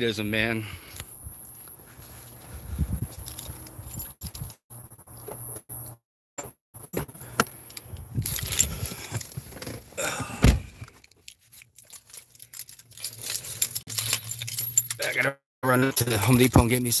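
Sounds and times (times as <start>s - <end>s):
shuffling and handling noise: 1.2s - 5.5s, 10.9s - 15.1s
truck door shutting: 9.4s - 10.9s.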